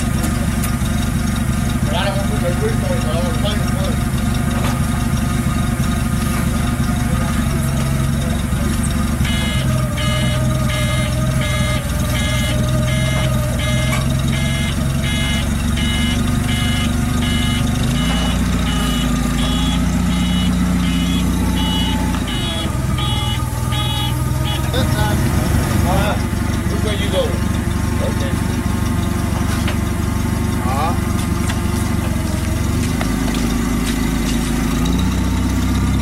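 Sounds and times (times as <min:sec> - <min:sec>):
forklift engine running: 0:00.0 - 0:36.0
reversing alarm beeping: 0:07.5 - 0:28.3.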